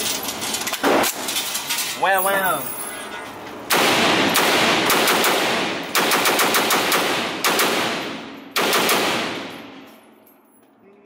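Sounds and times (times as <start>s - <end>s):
rifle gunshots echoing indoors: 3.7s - 10.0s.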